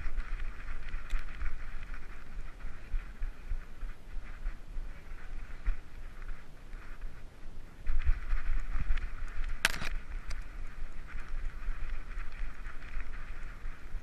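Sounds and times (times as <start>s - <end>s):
wind buffeting microphone: 0.0s - 14.0s
camera handling bumps: 9.6s - 10.0s.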